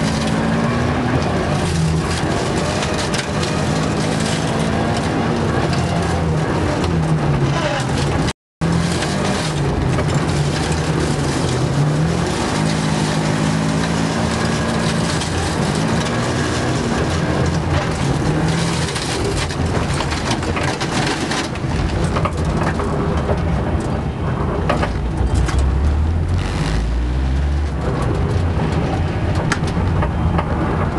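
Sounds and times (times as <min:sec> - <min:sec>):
car engine running: 0:21.6 - 0:30.9
tyres crunching on snow: 0:25.2 - 0:28.2.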